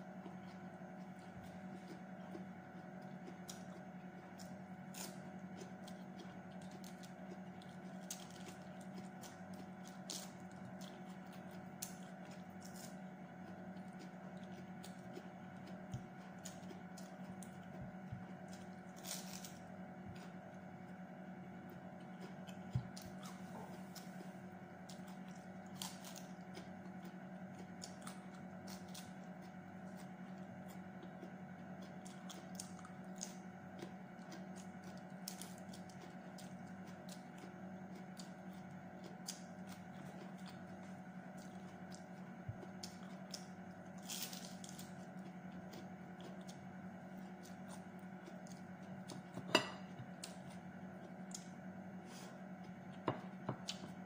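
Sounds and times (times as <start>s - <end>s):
chewing lettuce: 0.0s - 54.0s
steady low hum: 0.0s - 54.0s.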